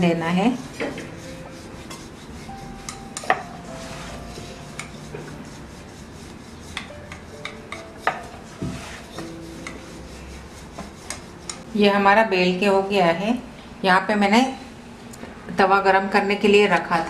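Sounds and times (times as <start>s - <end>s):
rolling pin rubbing dough: 0.0s - 11.7s
rolling pin knocking board: 6.8s - 9.3s.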